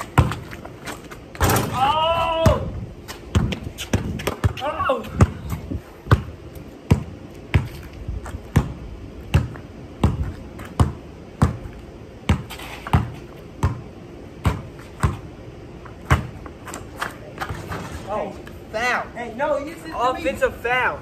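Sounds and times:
basketball bouncing on concrete: 0.0 - 17.9.

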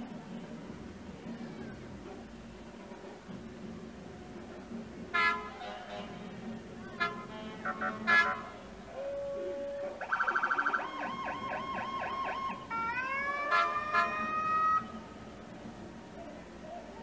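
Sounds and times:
car horn blasts: 5.2 - 6.3, 7.0 - 8.7, 13.5 - 14.9
police siren cycling tones: 10.0 - 14.9.

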